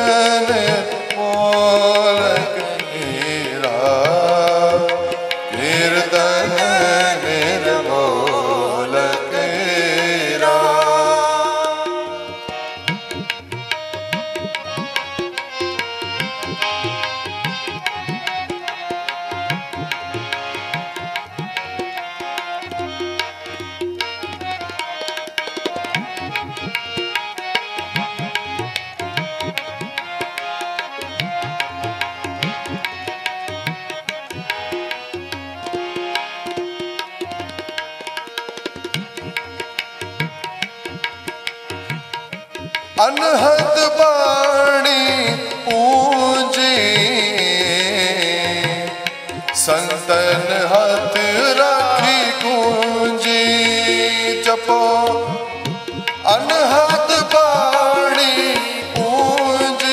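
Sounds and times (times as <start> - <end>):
fast tabla rhythm: 0.0 - 59.9
harmoniums playing melody: 0.0 - 59.9.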